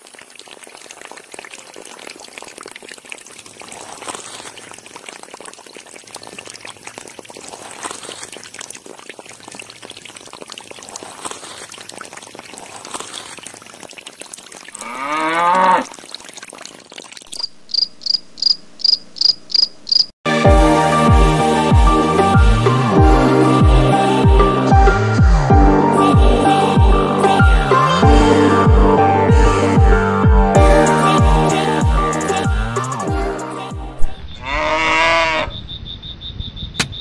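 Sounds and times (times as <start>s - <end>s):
water trickling and splashing: 0.0s - 17.5s
electronic music with heavy beat: 20.3s - 34.0s.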